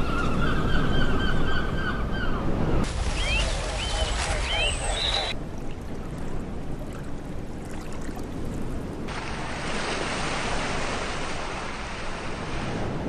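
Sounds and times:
wind: 0.0s - 13.0s
waves washing up a beach: 2.8s - 13.0s.

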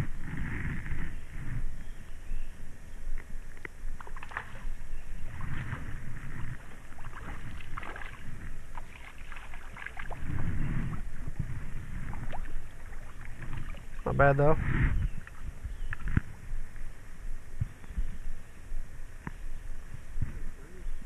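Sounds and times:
water splashing around wading person: 4.0s - 16.4s
low rumble: 10.0s - 21.0s.

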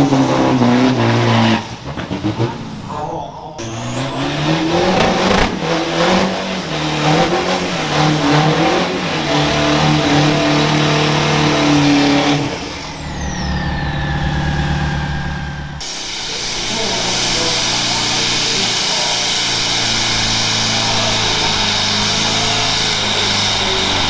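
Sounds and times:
engine running evenly: 0.0s - 24.0s
spinning tyre hissing: 0.0s - 24.0s
truck engine revving: 0.0s - 24.0s
high falling whistle: 9.4s - 24.0s.

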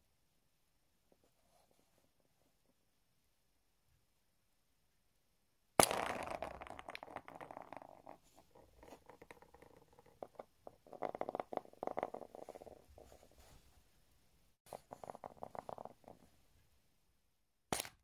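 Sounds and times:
walnuts rolling and clattering on table: 5.8s - 13.0s, 14.8s - 16.3s.

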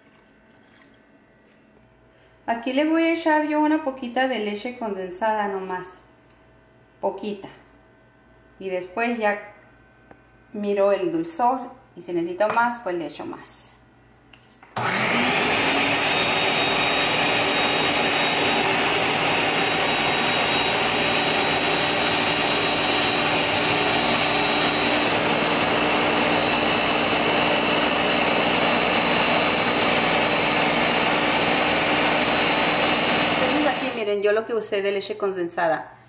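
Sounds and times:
blender motor running: 14.8s - 34.0s.

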